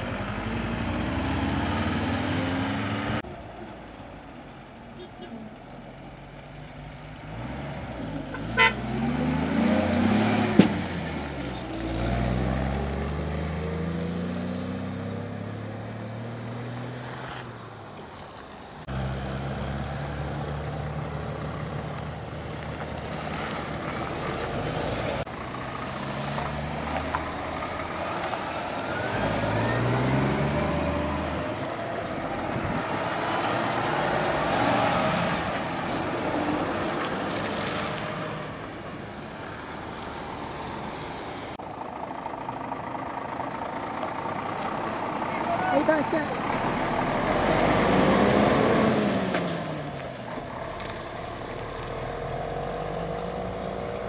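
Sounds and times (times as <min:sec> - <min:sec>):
lorry diesel engines accelerating: 0:00.0 - 0:54.0
short horn toot: 0:08.3 - 0:08.9.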